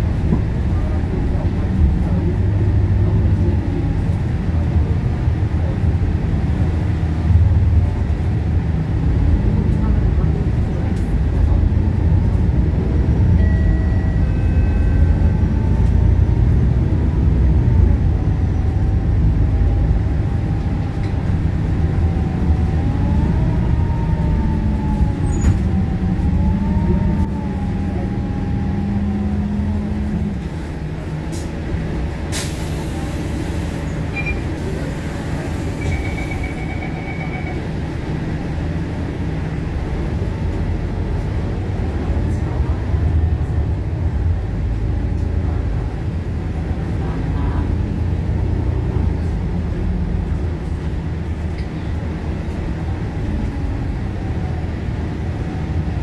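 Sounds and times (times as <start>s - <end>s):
bus diesel engine whining: 0.0s - 56.0s
short high beeping: 35.8s - 37.7s.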